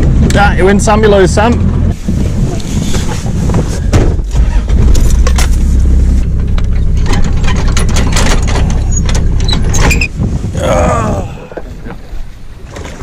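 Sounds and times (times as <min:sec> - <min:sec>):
vehicle engine rumbling: 0:00.0 - 0:13.0
rattles and clicks: 0:03.9 - 0:10.1.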